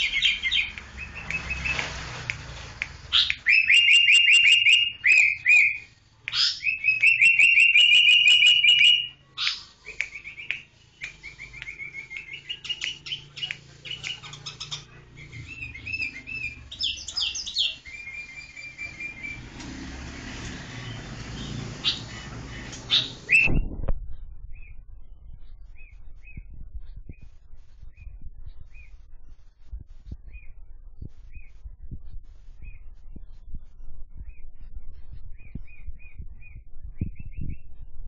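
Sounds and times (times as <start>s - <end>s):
bird chirping: 0.0s - 23.8s
bird rising notes: 10.1s - 23.8s.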